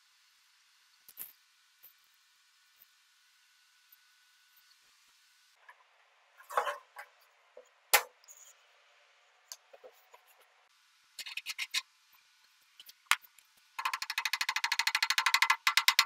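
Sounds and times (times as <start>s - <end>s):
metal scrape: 6.4s - 7.1s.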